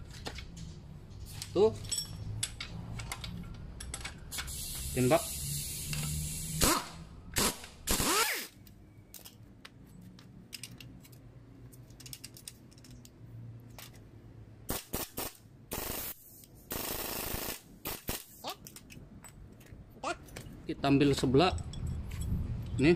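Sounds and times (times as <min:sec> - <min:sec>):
pneumatic impact wrench bursts: 0:04.3 - 0:08.6, 0:14.7 - 0:18.5.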